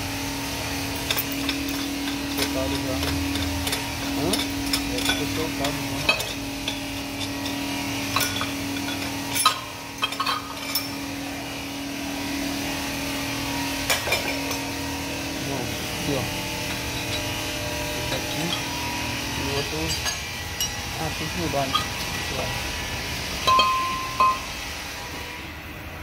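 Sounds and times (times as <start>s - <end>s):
steady low hum: 0.0s - 26.0s
metal clinks and knocks: 0.9s - 11.1s, 13.9s - 14.7s, 16.4s - 22.5s, 23.4s - 24.5s.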